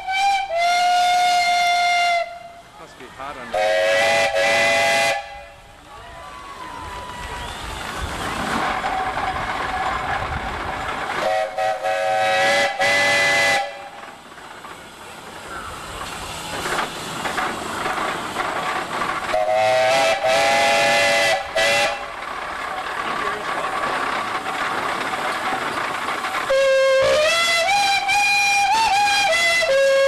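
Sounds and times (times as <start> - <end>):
steam whistles sounding a chord: 0.0 - 2.7, 3.5 - 5.6, 11.2 - 14.0, 19.3 - 22.1, 26.5 - 30.0
steady steam hiss: 0.0 - 30.0.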